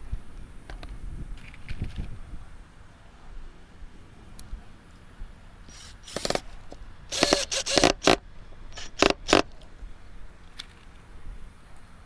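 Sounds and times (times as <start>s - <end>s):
cordless drill whining: 5.7s - 6.5s, 7.1s - 8.2s, 8.8s - 9.4s.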